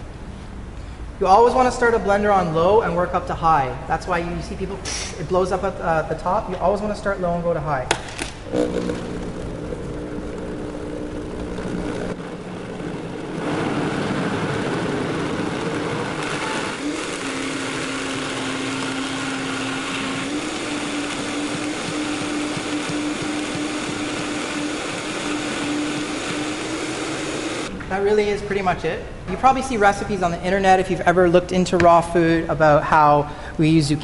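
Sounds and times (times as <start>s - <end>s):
blender running: 8.4s - 27.7s.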